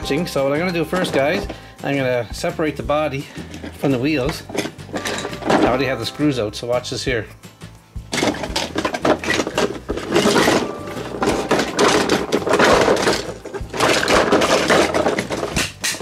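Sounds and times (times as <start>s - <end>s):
hard plastic scraping and clattering: 0.0s - 2.0s, 3.2s - 6.0s, 8.1s - 16.0s.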